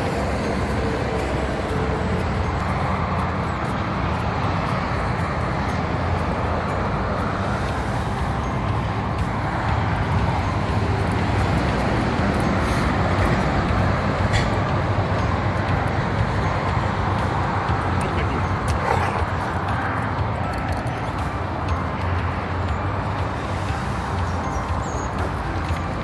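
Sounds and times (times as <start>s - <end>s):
motorway traffic rushing: 0.0s - 26.0s.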